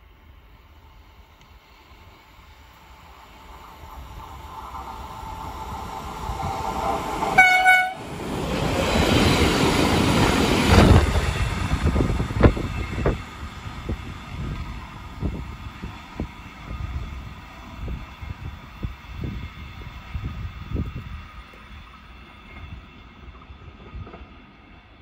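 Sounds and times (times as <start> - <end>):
locomotive rushing past: 1.0 - 24.5
train horn blast: 7.3 - 8.1.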